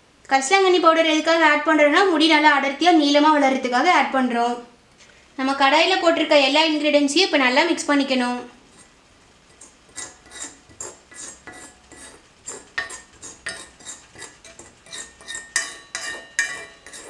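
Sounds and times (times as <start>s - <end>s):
steel spoon scraping an iron pan: 8.7s - 8.9s, 9.5s - 17.0s.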